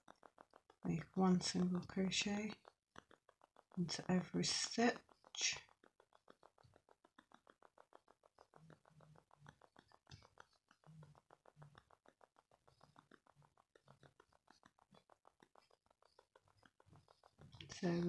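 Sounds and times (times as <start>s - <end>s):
faint rapid ticking: 0.0s - 18.0s.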